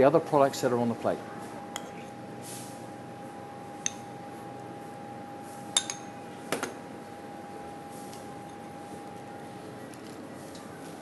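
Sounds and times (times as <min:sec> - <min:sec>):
steady hum: 0:00.0 - 0:11.0
metal spoon clinking on ceramic: 0:05.8 - 0:06.1.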